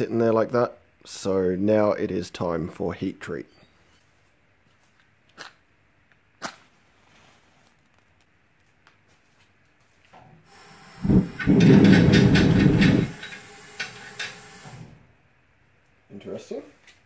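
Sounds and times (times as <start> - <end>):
gas hissing: 10.4 - 15.1
burner crackling roar: 10.8 - 13.4.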